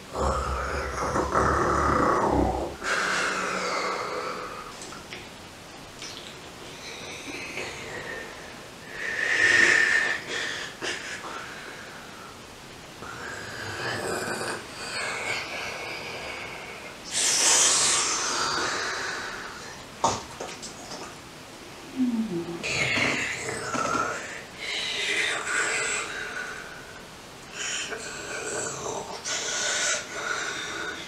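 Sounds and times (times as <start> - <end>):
person breathing loudly: 2.6 - 4.8, 6.8 - 12.4.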